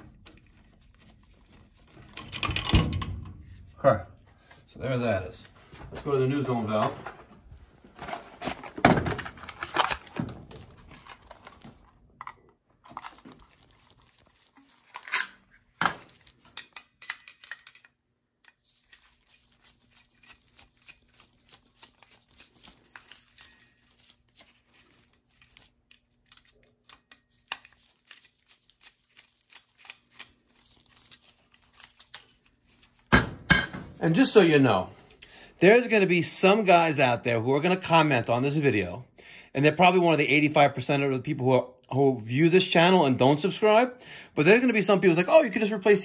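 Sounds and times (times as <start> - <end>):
packaging crinkling and tearing: 8.0 - 12.1, 12.8 - 17.9, 18.6 - 33.1.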